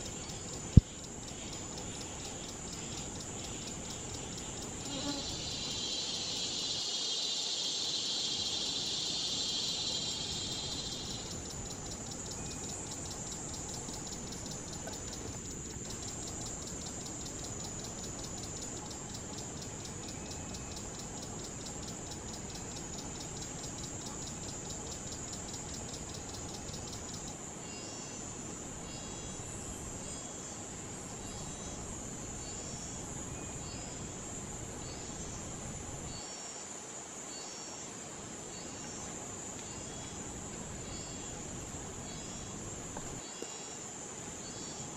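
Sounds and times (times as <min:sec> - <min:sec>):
fast pulsing insect call: 0:00.0 - 0:28.2, 0:38.5 - 0:43.4
insect high-pitched whine: 0:00.0 - 0:44.9.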